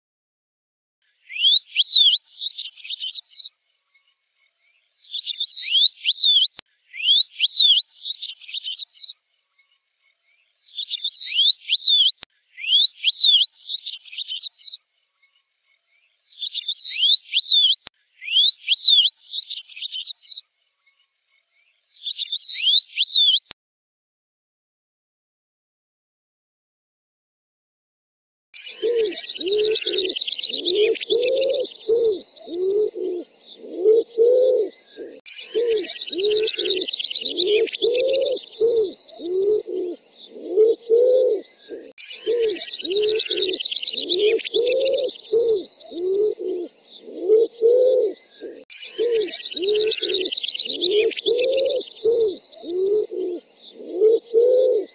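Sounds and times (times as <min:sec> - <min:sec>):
high chirping bird trill: 0:01.2 - 0:23.6, 0:28.6 - 0:54.9
reversed pigeon coos: 0:28.6 - 0:54.9.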